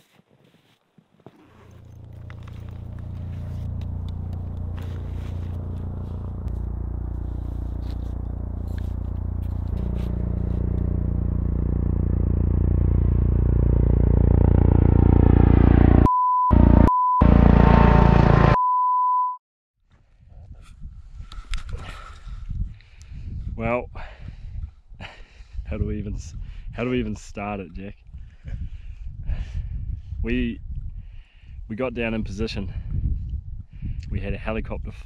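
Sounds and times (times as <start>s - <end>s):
helicopter rotor thudding: 1.8s - 16.0s, 16.6s - 18.6s
censor beeps: 16.1s - 17.4s, 18.5s - 19.4s.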